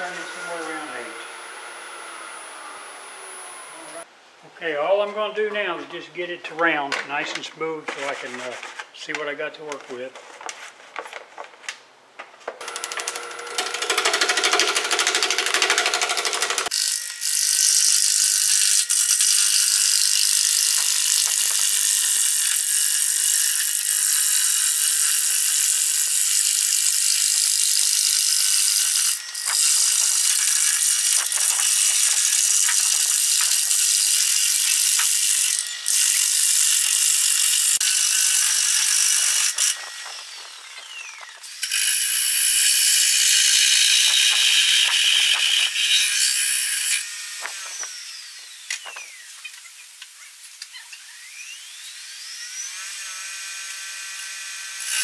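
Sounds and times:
lathe tool cutting wood: 12.6 - 49.3.

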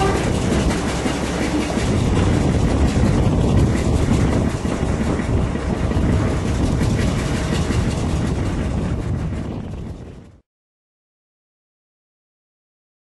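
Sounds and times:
diesel engine of train: 0.0 - 10.4
train wheels and coach running: 0.0 - 10.4.

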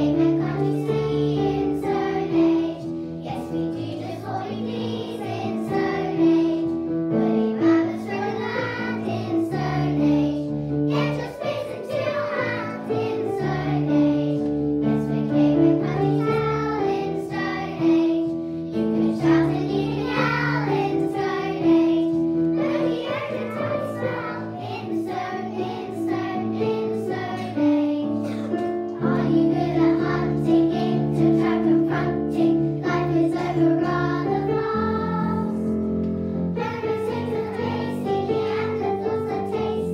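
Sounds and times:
girls singing together: 0.0 - 35.7, 36.6 - 39.9
musical accompaniment: 0.0 - 39.9.

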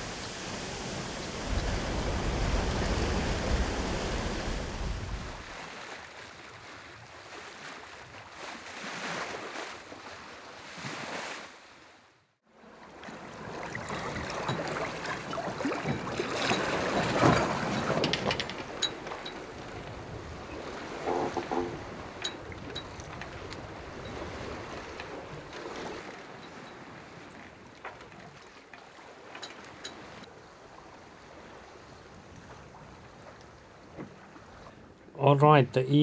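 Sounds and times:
wind buffeting the microphone: 0.0 - 5.6
water splashing along a hull: 0.0 - 35.6.

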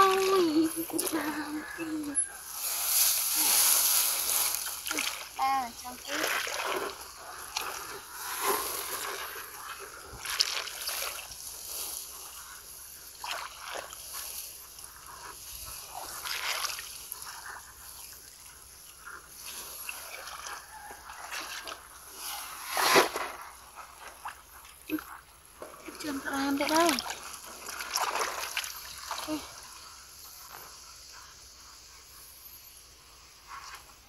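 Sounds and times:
feet splashing through muddy water: 3.4 - 12.4, 13.2 - 14.4, 15.8 - 17.5, 25.8 - 29.4.

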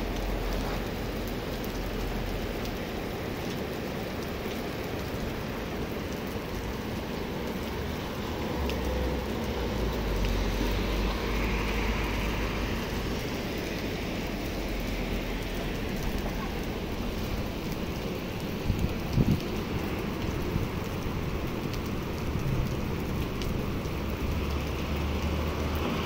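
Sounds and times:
car passing on wet road: 0.0 - 26.0
heavy rain on pavement: 0.0 - 26.0.

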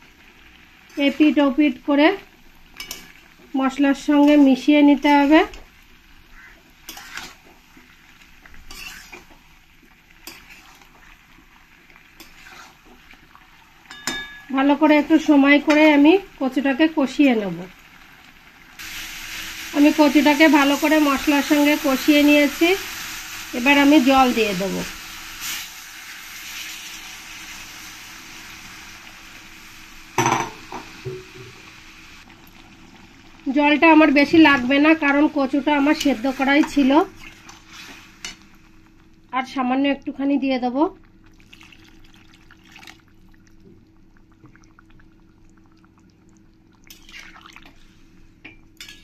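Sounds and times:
faint sizzle: 0.0 - 49.0
spatula stirring in a pan: 2.6 - 14.5, 34.2 - 38.5, 48.8 - 49.0
metal utensil clanking on pan: 2.8 - 3.2, 13.9 - 14.6, 48.5 - 49.0
spatula scraping and knocking pan: 6.5 - 7.6, 8.5 - 9.4, 12.2 - 13.0.

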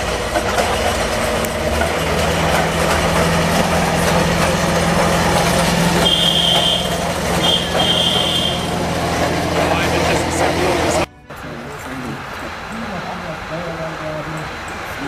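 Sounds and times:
diesel locomotive engine drone: 0.0 - 15.0
high steady horn tone: 5.8 - 9.0.

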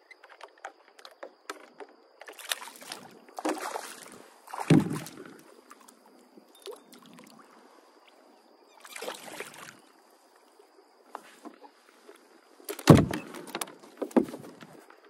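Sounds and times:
fishing gear clicks and knocks: 0.0 - 2.4, 12.6 - 15.0
fish splashing at the surface: 8.8 - 9.8.

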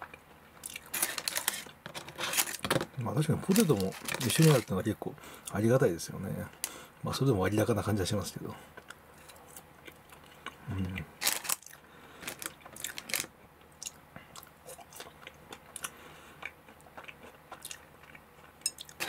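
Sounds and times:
chewing crisp food: 8.8 - 19.0.

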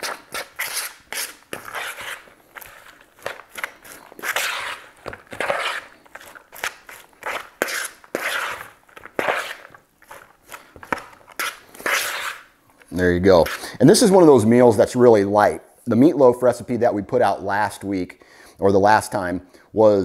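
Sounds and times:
utensil stirring coleslaw in bowl: 0.0 - 13.8.

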